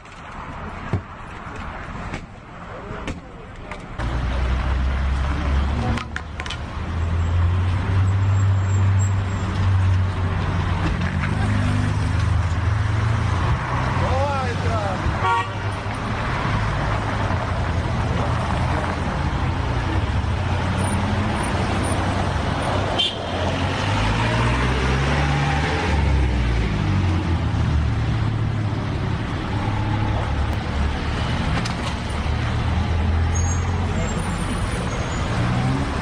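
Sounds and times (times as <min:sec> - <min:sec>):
car engines idling and passing: 0:00.0 - 0:36.0.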